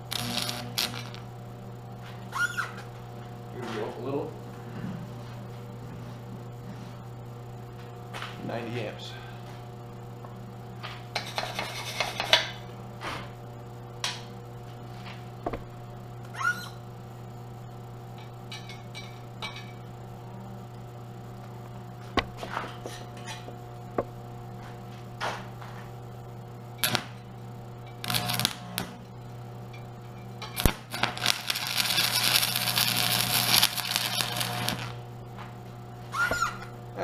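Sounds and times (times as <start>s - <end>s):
welding arc crackling: 0.0s - 4.2s, 18.0s - 35.8s
steady low hum: 0.0s - 37.0s
welding rod clicks and sputters: 0.1s - 1.2s, 26.8s - 27.1s, 28.0s - 29.0s, 30.4s - 35.0s.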